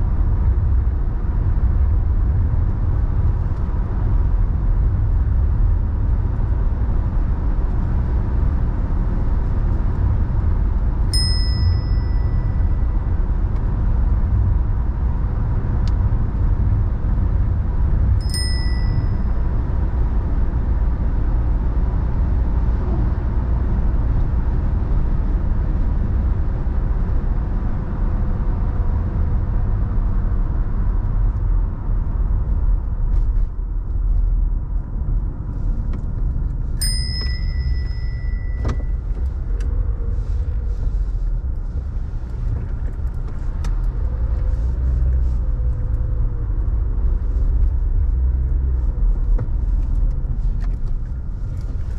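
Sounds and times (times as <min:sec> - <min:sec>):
car road and engine noise: 0:00.0 - 0:51.9
short high electronic chime: 0:11.2 - 0:12.7, 0:36.8 - 0:38.6.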